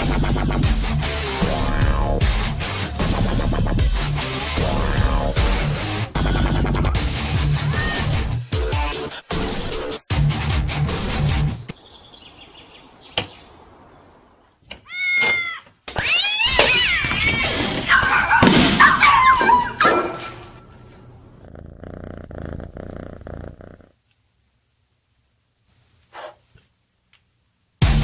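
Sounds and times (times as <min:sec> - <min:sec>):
cats meowing and yowling: 0:14.8 - 0:19.8.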